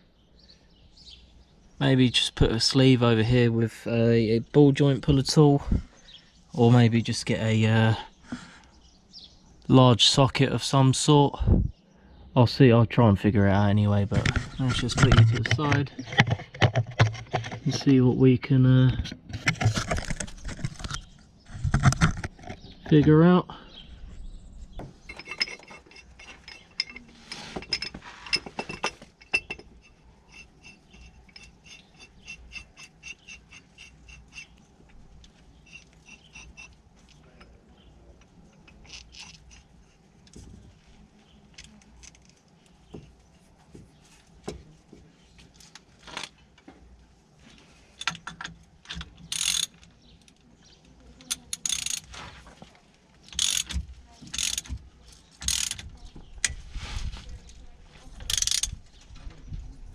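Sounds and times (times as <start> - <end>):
socket ratchet clicking: 48.9 - 49.8, 51.3 - 52.1, 53.3 - 54.8, 55.4 - 55.8, 58.3 - 58.8.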